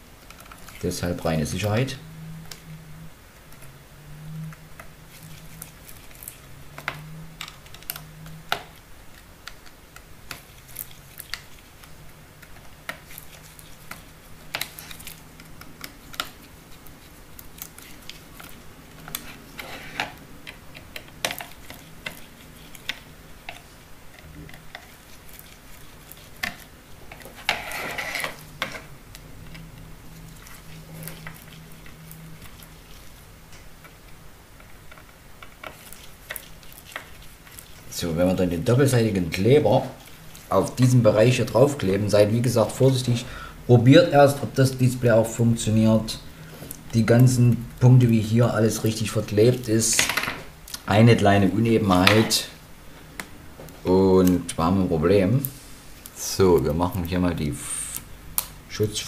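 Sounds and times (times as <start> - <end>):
rustling scrape: 16.0 - 20.2, 23.6 - 29.0.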